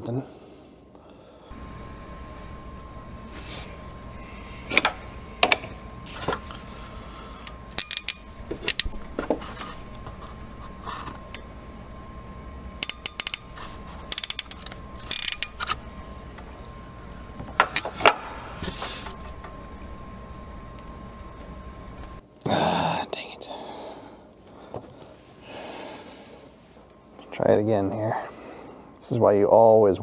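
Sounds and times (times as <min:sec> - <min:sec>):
crimping pliers ratchet clicks: 0:07.4 - 0:09.0, 0:12.8 - 0:13.5, 0:14.1 - 0:15.8.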